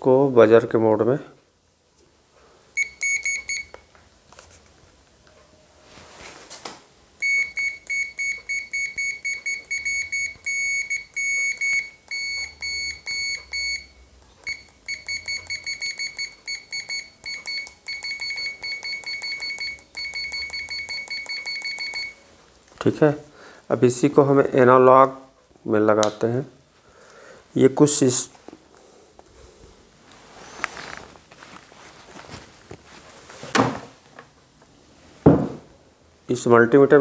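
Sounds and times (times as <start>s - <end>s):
multimeter buzzer beeping: 2.8s - 3.9s, 7.2s - 22.2s.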